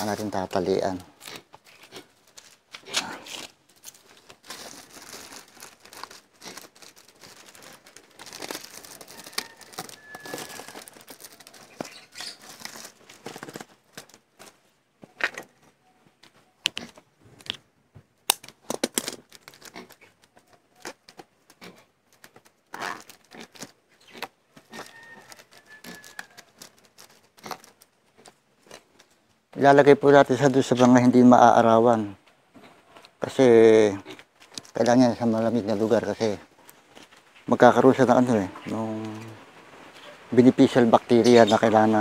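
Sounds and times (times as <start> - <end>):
plastic sheet crinkling: 0.0 - 15.6, 18.3 - 29.2, 32.9 - 42.0
sharp snaps and clicks: 18.2 - 23.1.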